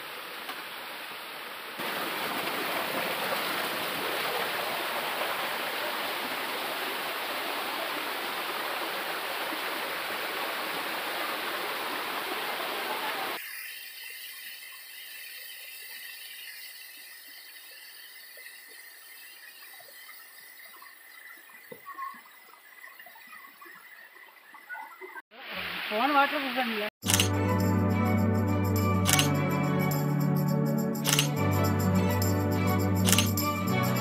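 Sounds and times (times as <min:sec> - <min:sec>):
waterfall splashing over rocks: 0:00.0 - 0:21.9.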